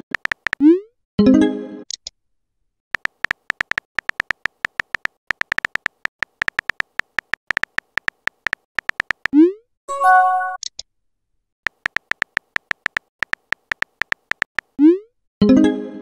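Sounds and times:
keyboard typing clicks: 0.0s - 0.7s, 3.0s - 9.4s, 11.7s - 14.8s.

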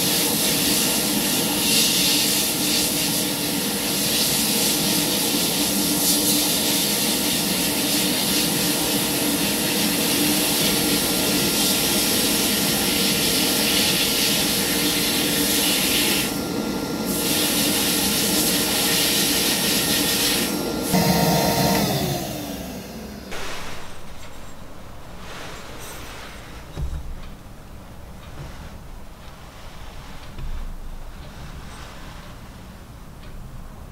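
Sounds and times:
sandblasting nozzle hissing: 0.0s - 23.9s.

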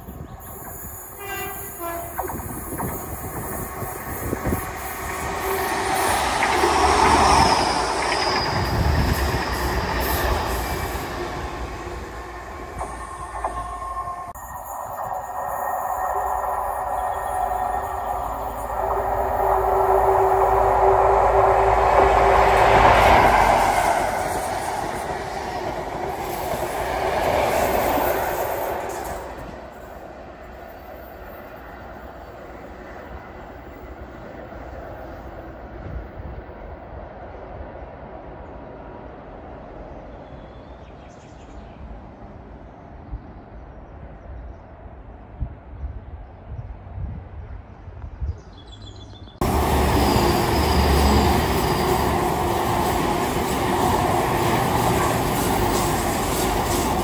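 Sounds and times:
diesel train passing at speed: 0.0s - 48.1s, 49.3s - 57.0s
wind buffeting microphone: 2.0s - 27.6s, 43.0s - 48.7s
bird chirping: 48.3s - 49.4s.

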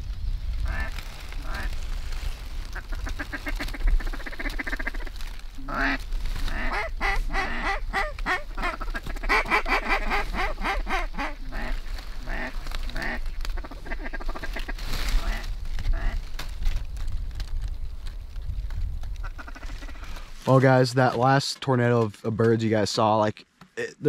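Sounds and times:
low wind rumble: 0.0s - 20.7s
ducks quacking: 0.6s - 1.8s, 2.7s - 16.3s, 19.2s - 20.3s.

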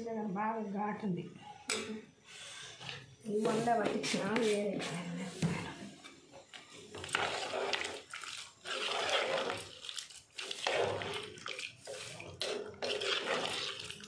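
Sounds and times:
spoon stirring thick curry in pot: 6.8s - 14.0s.

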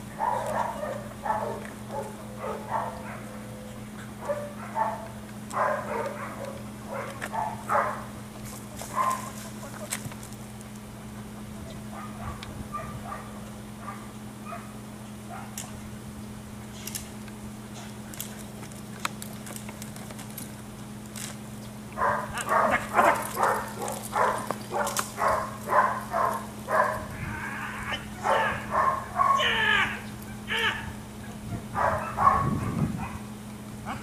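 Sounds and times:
dog barking: 0.2s - 8.1s, 8.9s - 9.4s, 11.9s - 14.7s, 15.3s - 15.6s, 22.0s - 27.1s, 28.2s - 30.0s, 31.7s - 33.3s.

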